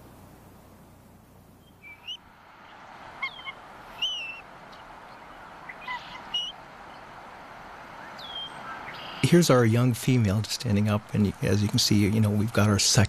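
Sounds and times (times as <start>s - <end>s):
eagle high-pitched calls: 1.6s - 7.1s, 8.0s - 9.3s.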